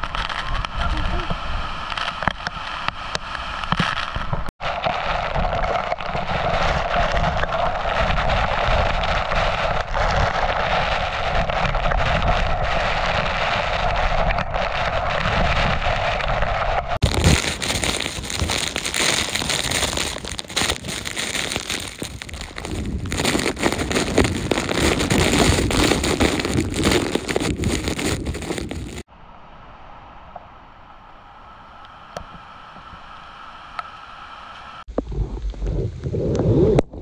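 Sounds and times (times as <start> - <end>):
heavy rain: 17.0 - 29.1.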